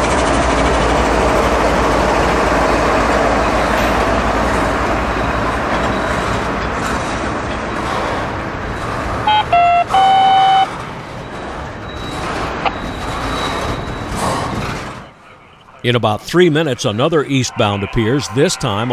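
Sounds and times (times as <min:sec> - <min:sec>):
freight train wheels rumbling on rail: 0:00.0 - 0:15.5
loud pitched tone: 0:09.2 - 0:10.7.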